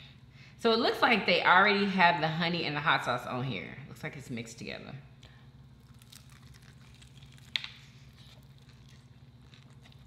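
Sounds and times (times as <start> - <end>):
steady low hum: 0.0 - 10.0
crunchy bite into chicken: 5.8 - 10.0.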